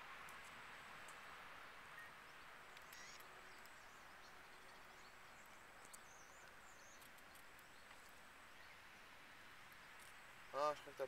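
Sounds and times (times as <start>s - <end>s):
faint outdoor hiss: 0.0s - 11.0s
faint high chirps: 1.9s - 7.9s.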